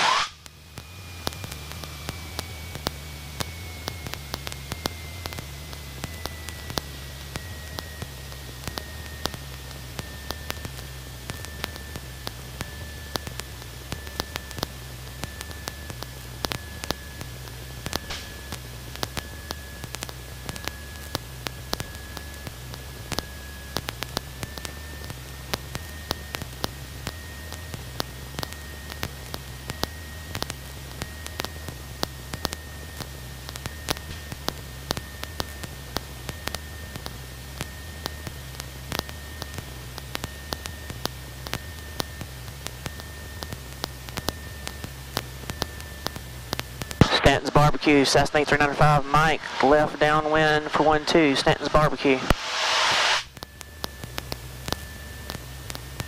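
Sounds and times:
faint high whine: 0:00.0 - 0:56.0
low hum: 0:00.0 - 0:56.0
steady hiss: 0:49.1 - 0:53.3.

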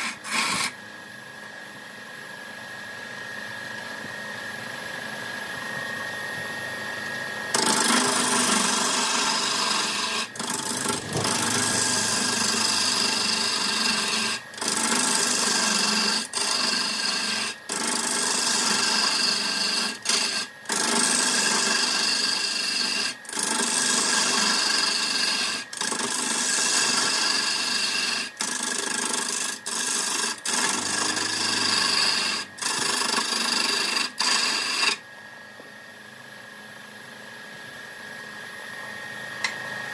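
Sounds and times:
tool scraping spinning wood: 0:00.0 - 0:00.8, 0:07.5 - 0:35.0
lathe motor humming: 0:07.5 - 0:35.0.

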